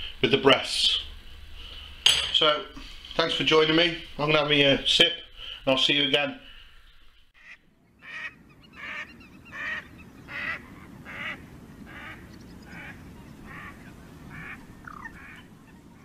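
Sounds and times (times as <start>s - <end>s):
low background noise: 0.0s - 16.0s
waterfowl calling: 7.4s - 16.0s.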